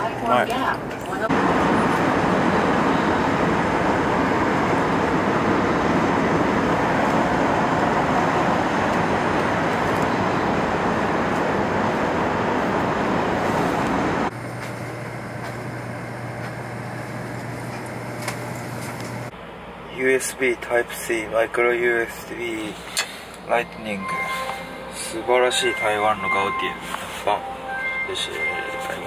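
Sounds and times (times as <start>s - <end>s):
low cabin hum: 1.2s - 29.0s.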